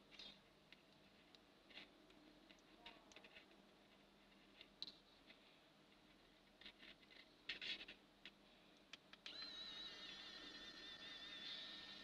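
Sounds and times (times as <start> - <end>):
small motor whine: 9.2 - 12.0.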